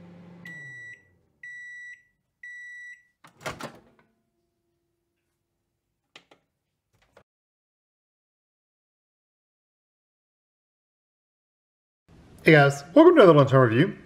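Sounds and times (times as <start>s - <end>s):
microwave oven humming: 0.0s - 1.6s.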